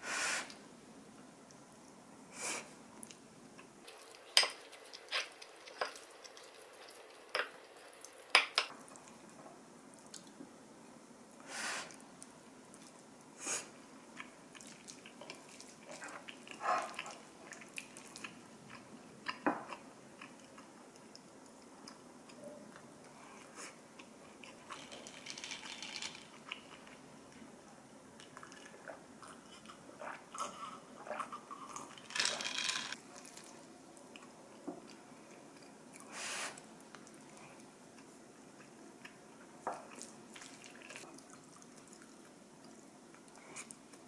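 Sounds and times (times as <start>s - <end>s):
chewing: 3.8s - 9.2s, 14.2s - 27.4s, 28.2s - 32.1s, 36.8s - 44.0s.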